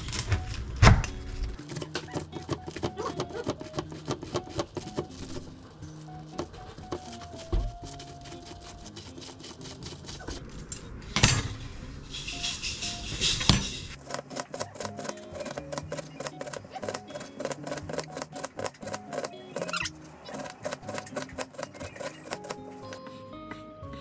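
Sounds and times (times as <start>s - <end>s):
light background music: 0.1s - 10.4s, 11.5s - 24.0s
knife chopping cabbage: 1.6s - 5.5s, 6.2s - 10.4s, 14.0s - 23.7s.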